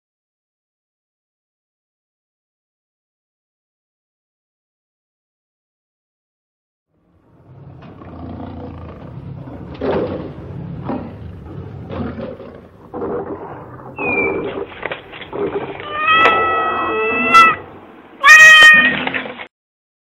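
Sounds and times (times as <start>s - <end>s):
cat meowing: 15.8s - 19.2s.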